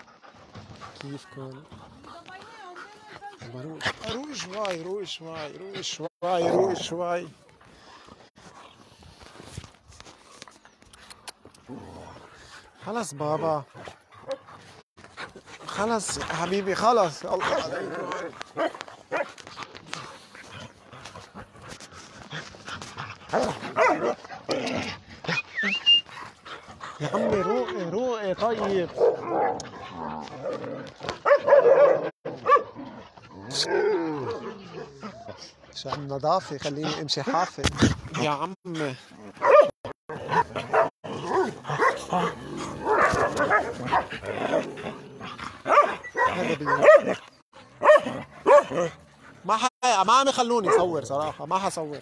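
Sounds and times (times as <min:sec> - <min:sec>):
dogs barking and yipping: 0:12.4 - 0:37.6, 0:38.8 - 0:52.0
dogs yelping and whining: 0:22.4 - 0:27.9, 0:39.2 - 0:49.5.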